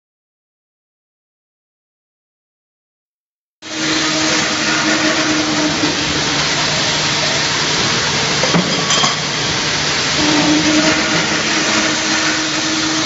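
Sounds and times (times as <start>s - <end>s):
loud hissing noise: 3.6s - 13.0s.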